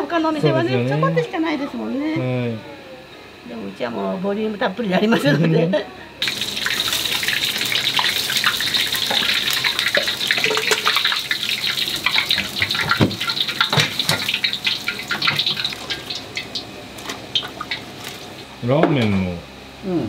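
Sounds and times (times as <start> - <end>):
hot oil sizzling and crackling: 6.2 - 18.6.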